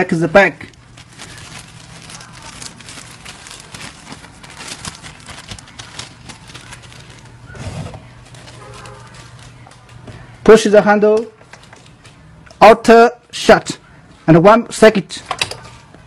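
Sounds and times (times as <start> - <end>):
plastic bag rustling: 0.6 - 10.3.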